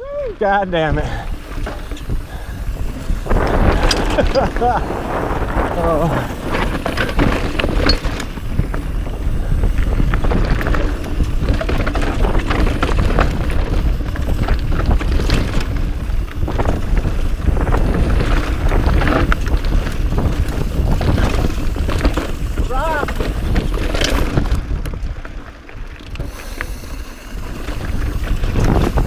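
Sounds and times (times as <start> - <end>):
wind on microphone: 0.0 - 25.4, 26.1 - 29.0
bike rattling: 0.0 - 29.0
tyres rolling over loose rock: 0.7 - 29.0.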